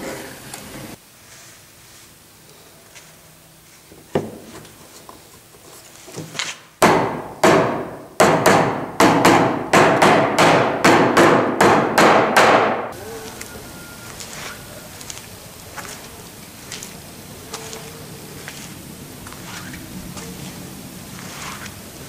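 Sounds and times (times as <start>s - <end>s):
mallet striking wood: 6.8s - 12.9s.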